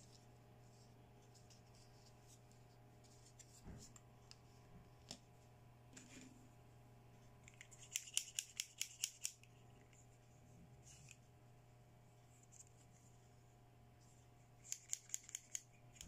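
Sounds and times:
plastic scissors clicking: 7.8 - 9.4, 14.7 - 16.0.

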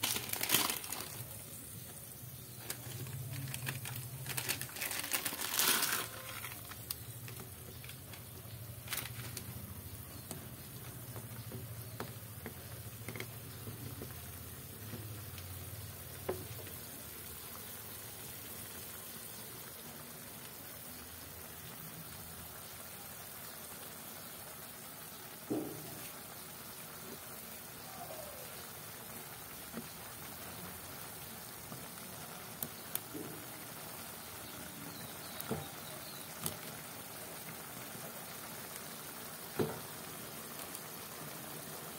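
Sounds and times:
broth bubbling in a pot: 0.0 - 41.9.

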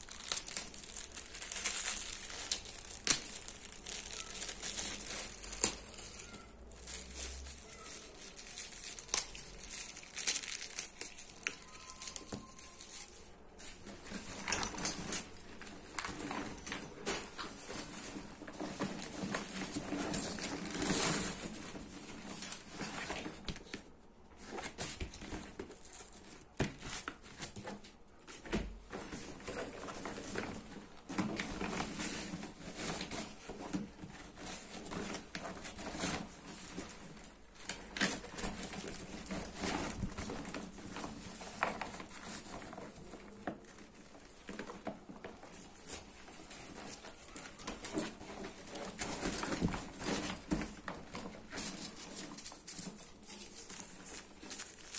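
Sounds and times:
backpack fabric rustling and crinkling: 0.0 - 23.8.

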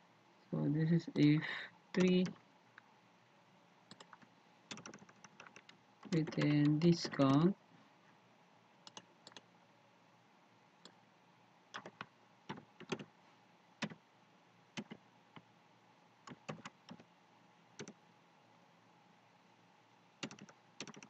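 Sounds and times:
computer keyboard keystrokes: 2.0 - 2.4, 3.9 - 7.4, 11.8 - 13.1, 14.8 - 15.0, 16.3 - 17.0, 20.2 - 21.0.

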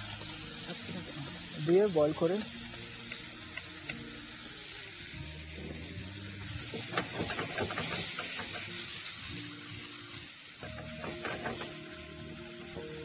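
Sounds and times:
sauce sizzling in frying pan: 0.0 - 13.0
spatula scraping and tapping pan: 6.7 - 8.7, 10.6 - 11.8.

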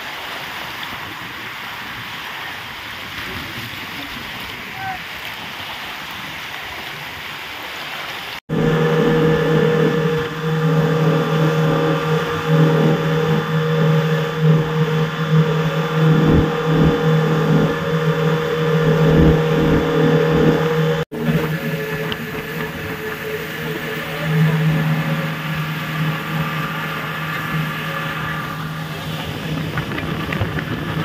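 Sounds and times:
engine running loud: 8.5 - 31.0.

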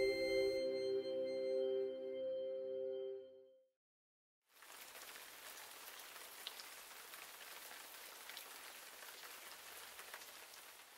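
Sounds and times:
rain on a wet street: 4.5 - 10.9.

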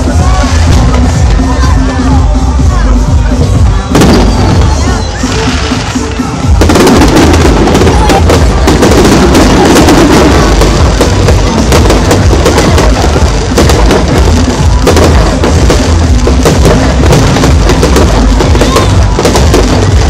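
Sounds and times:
fireworks bursting: 0.0 - 20.0.

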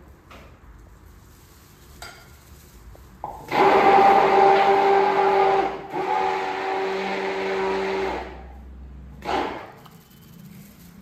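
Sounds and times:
stick blender motor hum: 3.5 - 8.4.

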